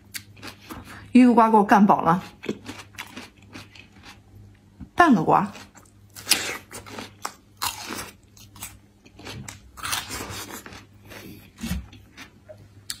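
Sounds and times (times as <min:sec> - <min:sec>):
person biting and chewing melon: 0:02.4 - 0:04.2, 0:05.6 - 0:13.0.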